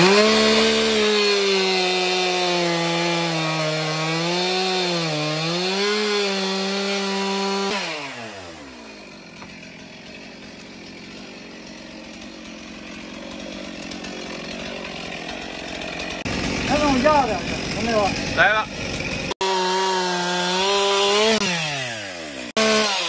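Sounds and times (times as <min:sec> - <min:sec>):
chainsaw cutting log: 0:00.0 - 0:23.0.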